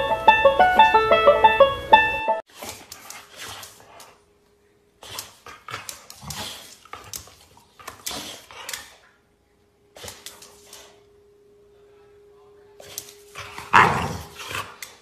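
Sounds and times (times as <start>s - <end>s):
dog snapping and huffing: 2.5s - 4.2s, 5.0s - 9.0s, 10.0s - 10.9s.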